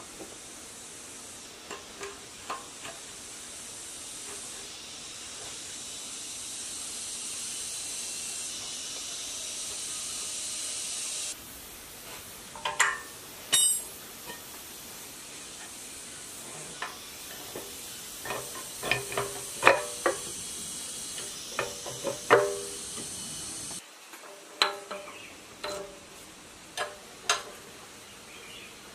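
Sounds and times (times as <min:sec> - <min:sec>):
steady high hiss: 0:00.0 - 0:28.9
metal tools knocking on engine: 0:17.3 - 0:20.4, 0:21.2 - 0:22.9.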